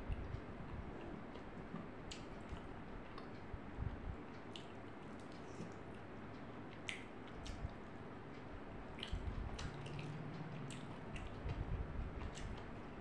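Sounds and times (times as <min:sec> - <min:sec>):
steady low hiss: 0:00.0 - 0:13.0
wet mouth clicks and smacks: 0:06.7 - 0:07.8, 0:09.0 - 0:11.5, 0:12.2 - 0:12.7.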